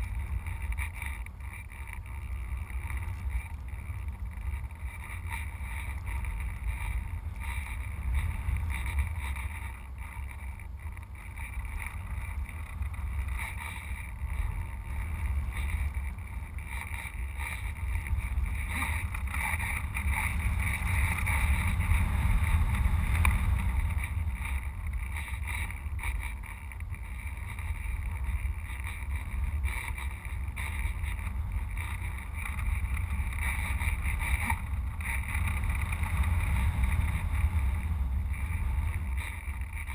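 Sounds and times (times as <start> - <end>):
wind buffeting rumble: 0.0 - 39.9.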